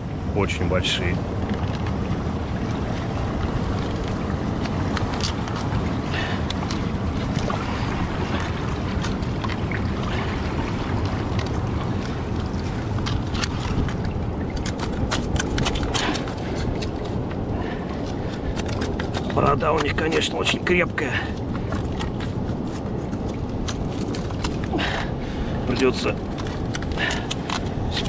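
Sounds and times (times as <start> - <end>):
surf: 0.0 - 28.0
wind on microphone: 0.0 - 28.0
chisel scraping shells and rock: 3.3 - 9.6, 11.2 - 25.0, 25.7 - 28.0.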